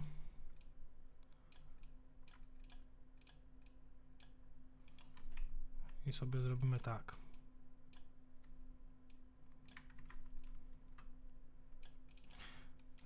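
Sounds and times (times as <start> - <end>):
faint steady hum: 0.0 - 13.0
keyboard and mouse clicks: 4.2 - 5.5, 9.6 - 11.1, 11.7 - 13.0.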